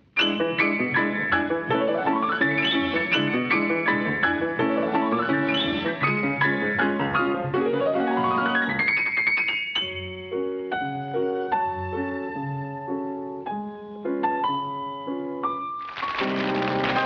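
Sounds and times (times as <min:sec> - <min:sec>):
grand piano playing: 0:00.0 - 0:17.0.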